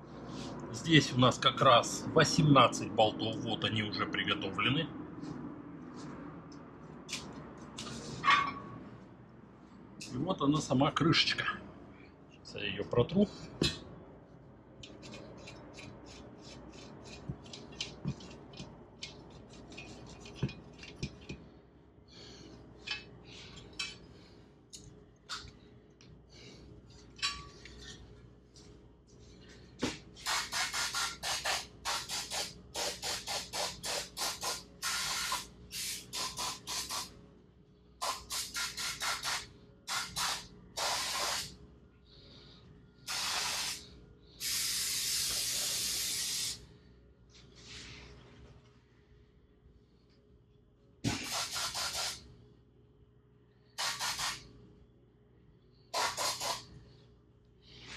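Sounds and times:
compressed air blow gun hissing: 30.2 - 37.1, 38.0 - 41.5, 43.1 - 46.6, 51.1 - 52.2, 53.8 - 54.4, 55.9 - 56.6.

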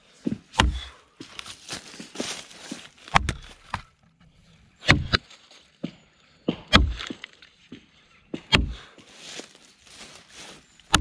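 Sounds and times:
axe chopping into a log: 0.5 - 0.9, 3.1 - 3.8, 4.8 - 5.2, 6.5 - 7.3, 8.4 - 8.9.

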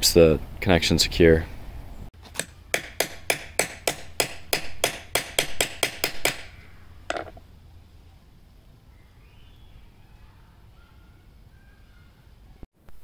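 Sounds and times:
hammer knock: 2.4 - 6.5.

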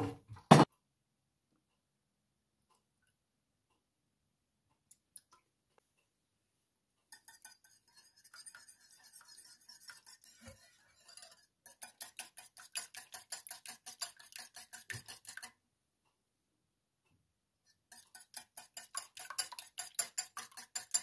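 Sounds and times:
whisk clicking against bowl: 7.1 - 15.6, 17.9 - 21.0.

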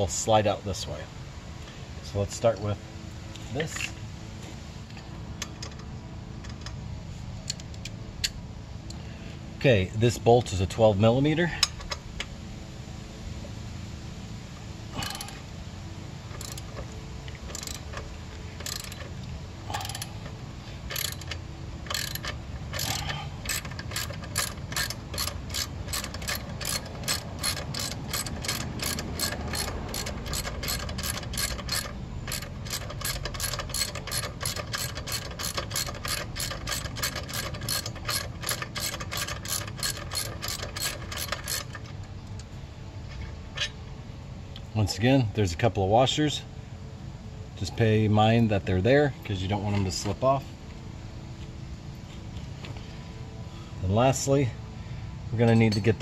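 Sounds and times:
socket ratchet clicking: 16.4 - 19.1, 19.7 - 20.1, 20.9 - 41.9.

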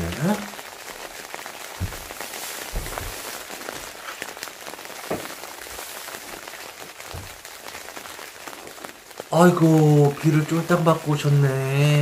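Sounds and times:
rain on a tarpaulin: 0.0 - 12.0
knocks: 1.8 - 2.1, 2.7 - 3.2, 7.1 - 7.4.

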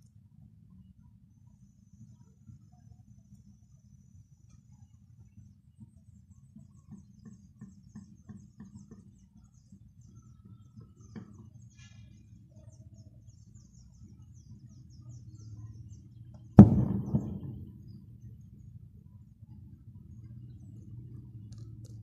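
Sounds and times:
cannon bang: 16.6 - 17.8.

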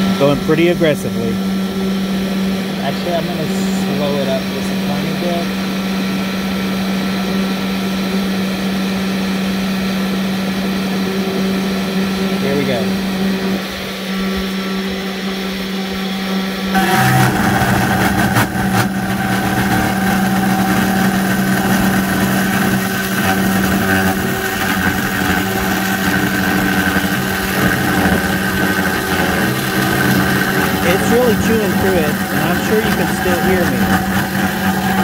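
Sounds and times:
spindle motor humming: 0.0 - 35.0
end mill milling metal: 16.3 - 35.0.

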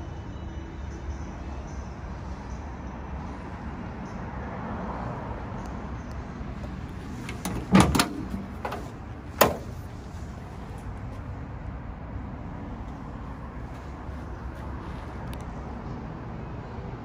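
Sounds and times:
car door latch clicking: 7.2 - 9.7.

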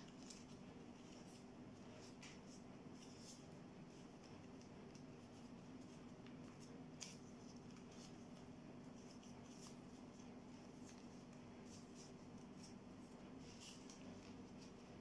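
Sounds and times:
low steady hum: 0.0 - 15.0
paper rustling and crinkling: 0.0 - 15.0.

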